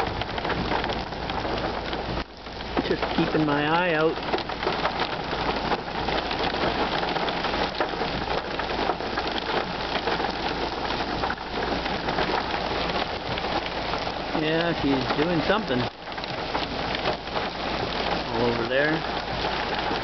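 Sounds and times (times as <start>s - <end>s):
heavy rain on a car: 0.0s - 20.0s.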